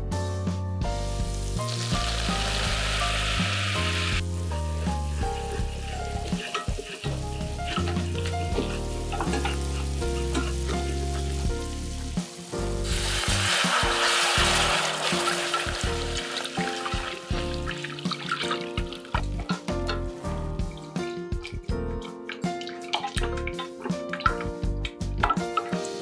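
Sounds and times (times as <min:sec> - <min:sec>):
background music: 0:00.0 - 0:26.0
butter sizzling in a saucepan: 0:01.0 - 0:20.7
milk hissing in hot pan: 0:01.1 - 0:19.2
whisk scraping and clicking: 0:05.6 - 0:10.3.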